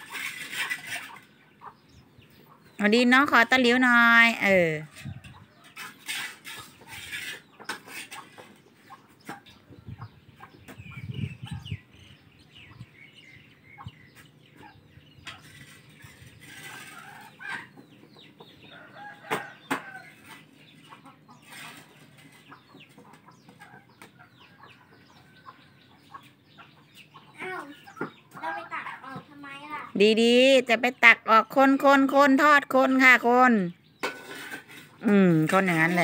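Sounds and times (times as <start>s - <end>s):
spatula scraping a wok: 0.0s - 1.4s, 4.9s - 8.9s, 15.3s - 17.8s, 21.4s - 22.5s, 34.0s - 36.0s
chickens clucking: 0.0s - 30.0s.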